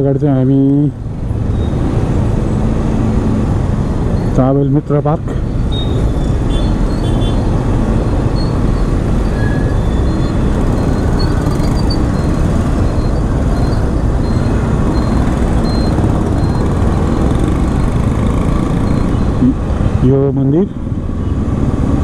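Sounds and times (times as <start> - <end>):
traffic noise: 0.0 - 22.0
motorcycle engine: 5.7 - 19.9.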